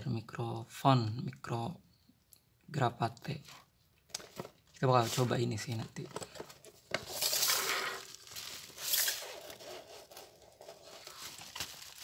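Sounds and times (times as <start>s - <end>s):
bubble wrap crinkling: 6.9s - 12.0s.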